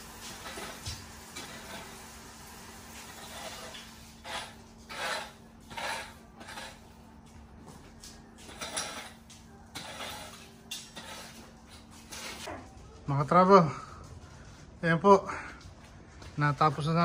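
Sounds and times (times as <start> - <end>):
scraping and rustling strokes: 0.1 - 2.1, 2.8 - 7.3, 8.2 - 12.5.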